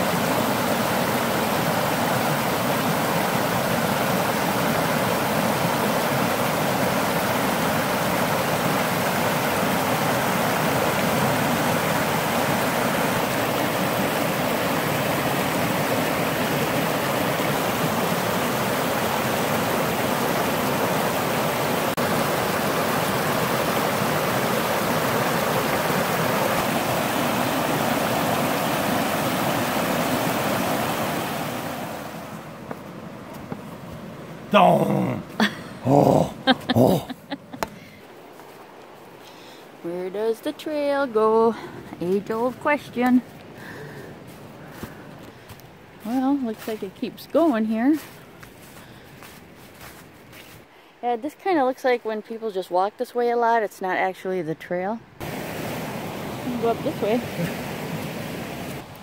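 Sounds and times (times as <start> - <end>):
water rushing over rocks: 0.0 - 39.2, 55.2 - 59.0.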